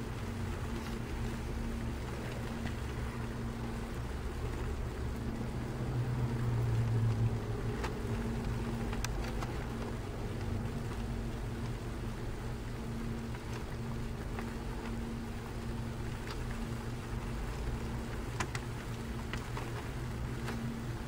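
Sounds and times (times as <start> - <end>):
engine humming: 0.0 - 21.0
faint clicks: 6.8 - 11.8, 16.1 - 20.8.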